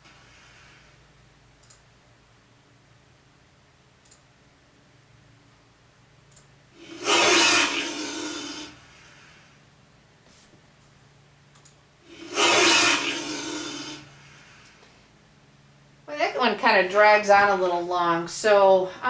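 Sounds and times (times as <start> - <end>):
faint mouse clicks: 1.6 - 1.9, 4.0 - 4.3
harsh noisy monster roar: 6.8 - 8.8, 12.1 - 14.1.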